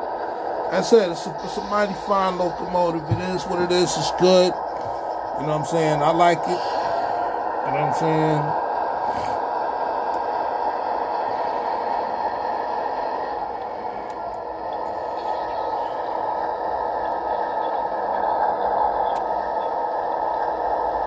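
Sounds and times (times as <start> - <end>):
tinny diesel engine idle from speaker: 0.3 - 9.4, 13.4 - 19.9.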